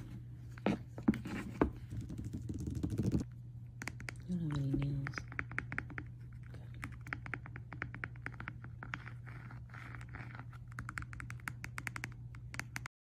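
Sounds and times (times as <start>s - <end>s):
low steady hum: 0.0s - 12.9s.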